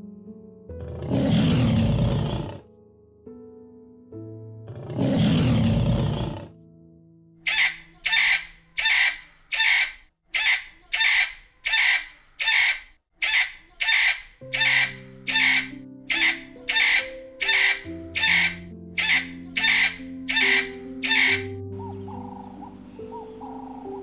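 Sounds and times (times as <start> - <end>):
background music: 0.0 - 9.8, 14.0 - 24.0
lion roaring: 0.8 - 2.6, 4.7 - 6.5
harsh animal call: 7.4 - 24.0.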